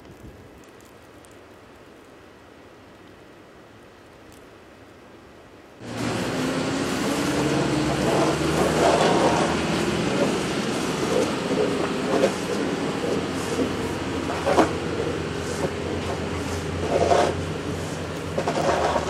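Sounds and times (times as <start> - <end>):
plow scraping: 5.8 - 19.0
truck engine droning: 5.8 - 19.0.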